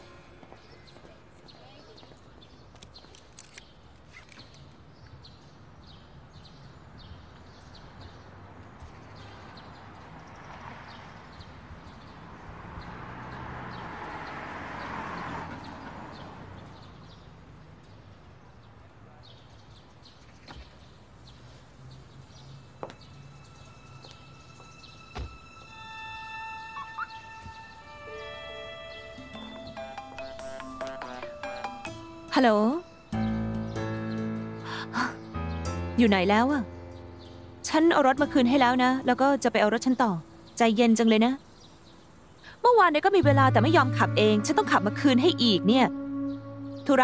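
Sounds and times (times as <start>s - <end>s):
car driving past: 12.1s - 16.9s.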